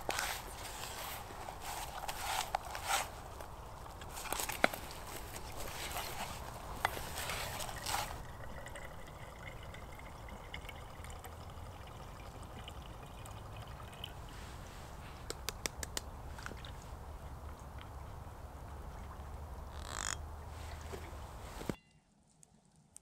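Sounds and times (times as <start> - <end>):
water trickling: 0.0 - 15.0.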